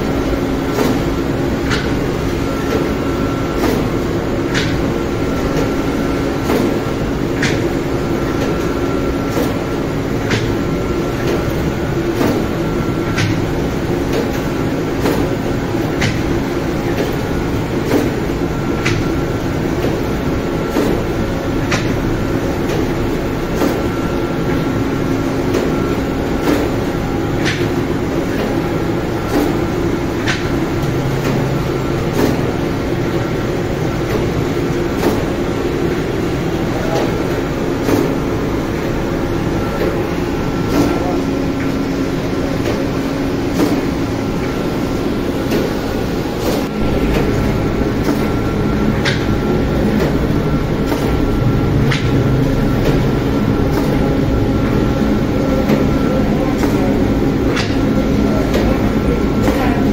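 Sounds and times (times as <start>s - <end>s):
bakery machinery droning: 0.0s - 59.9s
machine clicks: 46.4s - 55.0s, 55.6s - 59.9s.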